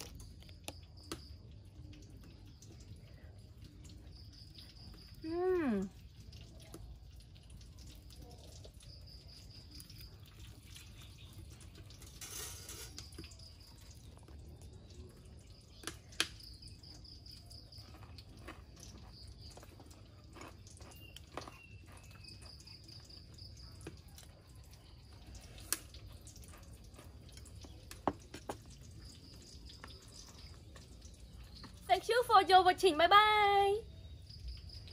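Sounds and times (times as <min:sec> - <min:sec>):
insects trilling: 0:00.0 - 0:06.5, 0:07.6 - 0:34.9.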